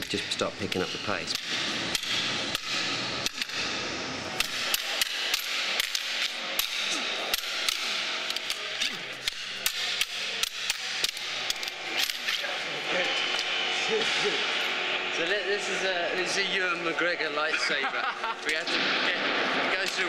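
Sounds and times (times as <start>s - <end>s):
metal rods clacking together: 0.0s - 3.7s, 4.4s - 12.6s.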